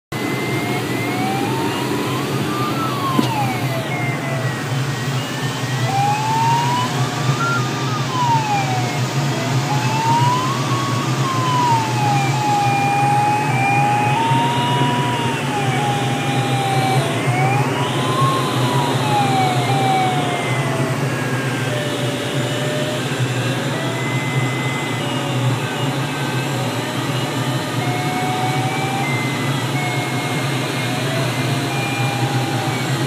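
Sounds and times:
variometer tone sliding in pitch: 0.1 - 33.0.

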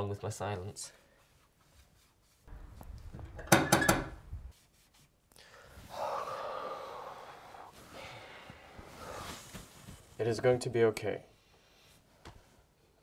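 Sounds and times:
man breathing out heavily: 5.4 - 9.4.

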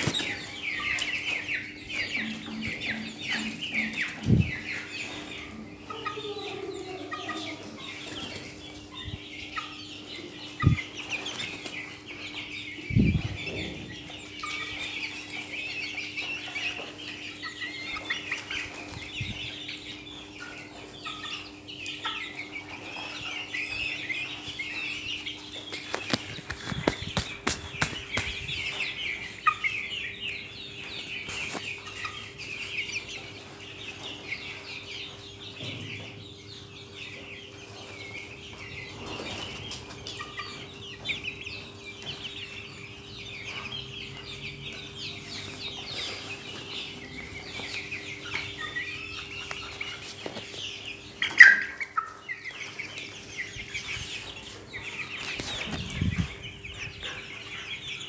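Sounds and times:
chickens clucking: 0.0 - 58.0
chicken squawk: 51.2 - 52.2.

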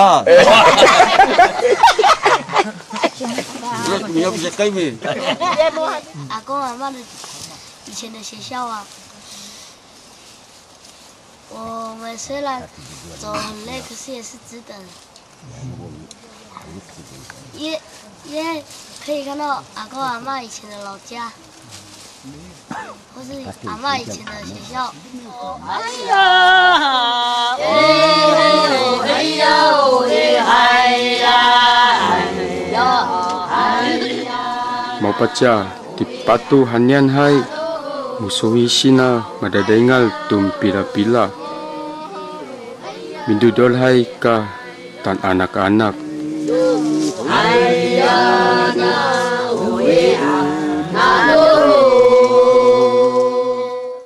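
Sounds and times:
person singing chant-like song: 23.5 - 54.0.

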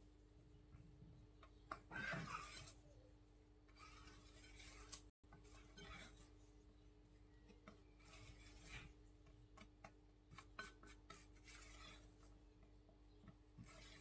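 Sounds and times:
spatula folding batter: 0.0 - 14.0.

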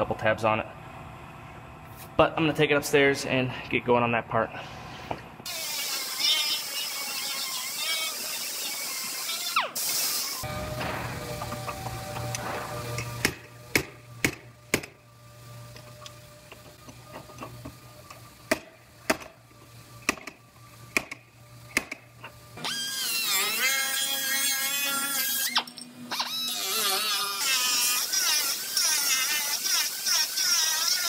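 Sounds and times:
low steady hum: 10.5 - 22.6.

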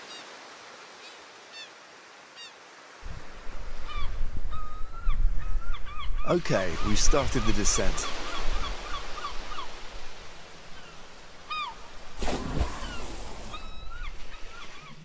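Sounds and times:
seabirds crying: 3.7 - 15.0
waves washing: 6.3 - 15.0.

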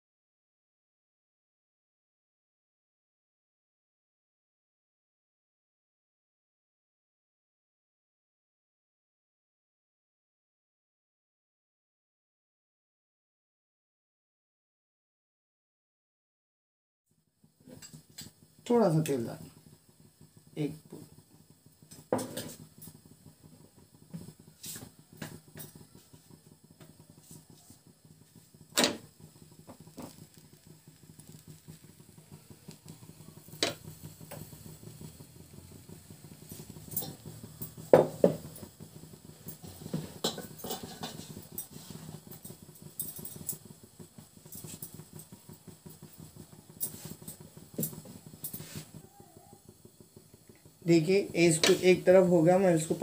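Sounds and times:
utensils knocking on iron griddle: 21.9 - 22.6, 36.5 - 38.8, 39.5 - 43.6.

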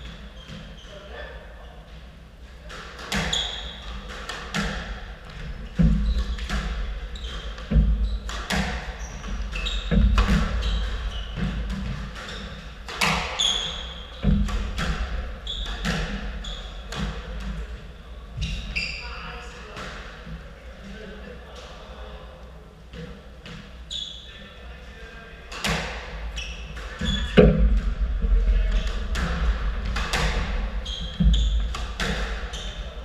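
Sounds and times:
shoes squeaking on wooden floor: 3.1 - 3.9, 5.4 - 14.8, 15.4 - 17.0, 26.3 - 27.6, 30.1 - 33.0
squash ball smacking: 26.8 - 28.0, 28.8 - 32.5.

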